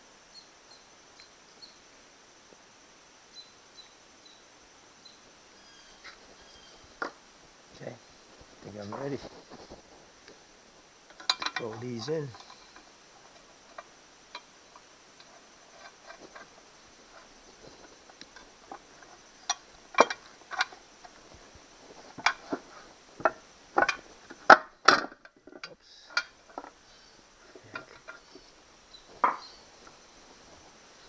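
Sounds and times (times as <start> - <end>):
metal rod clinking on housing: 11.1 - 12.6.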